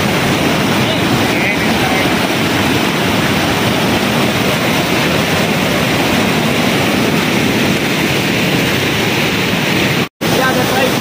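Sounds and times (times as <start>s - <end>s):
waterfall roaring: 0.0s - 11.0s.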